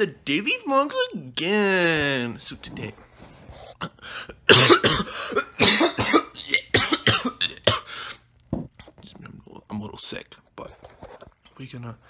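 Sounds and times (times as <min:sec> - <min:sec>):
man talking: 0:00.0 - 0:03.0, 0:11.6 - 0:12.0
man coughing: 0:03.8 - 0:08.2.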